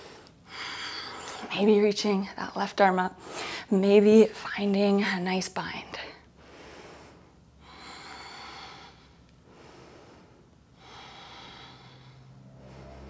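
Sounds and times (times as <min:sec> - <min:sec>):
woman breathing through nose: 0:06.4 - 0:13.0.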